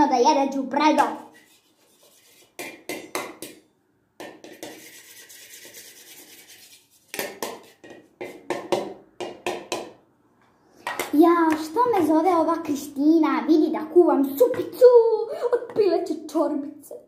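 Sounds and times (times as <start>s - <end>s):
wooden spoon scraping pan: 1.1s - 2.7s, 4.4s - 8.4s
wooden spoon knocking on pan: 7.2s - 10.0s.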